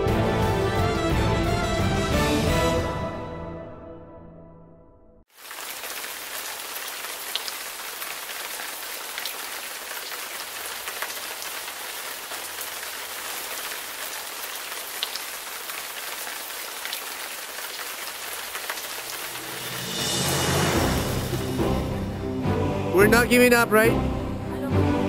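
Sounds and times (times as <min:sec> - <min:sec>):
heavy rain on hard surface: 0:05.3 - 0:22.3.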